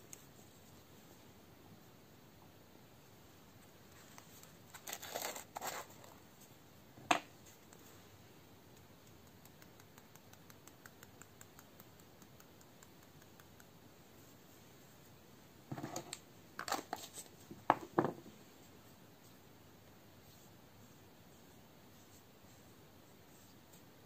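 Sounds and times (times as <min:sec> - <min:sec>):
glitter ticking on plastic: 0:08.7 - 0:13.8.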